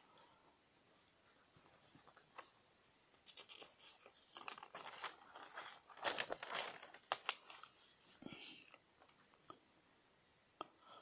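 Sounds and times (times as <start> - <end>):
faint rustling and crackling: 0.9 - 9.6.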